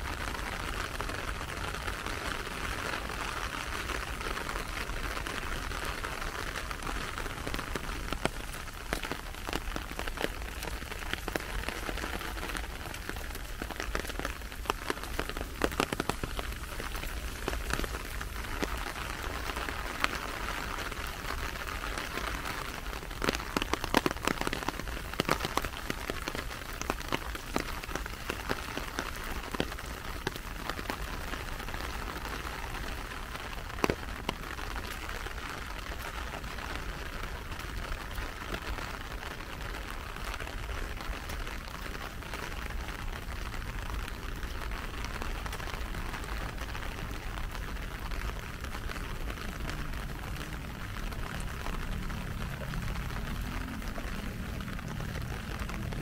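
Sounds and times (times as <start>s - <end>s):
rain hiss: 0.0s - 56.0s
raindrop taps: 5.2s - 20.5s, 23.2s - 31.4s, 32.1s - 35.0s.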